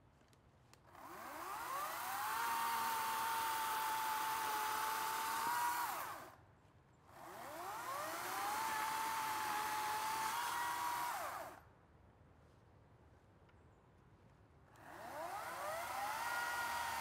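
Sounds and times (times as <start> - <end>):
electric chainsaw whining: 0.9 - 6.4, 7.1 - 11.6, 14.8 - 17.0.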